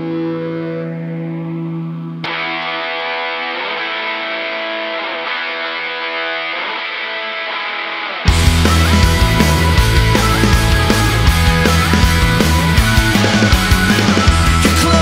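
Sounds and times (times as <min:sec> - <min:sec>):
distorted electric guitar: 0:00.0 - 0:15.0
full band with drums and bass: 0:08.3 - 0:15.0.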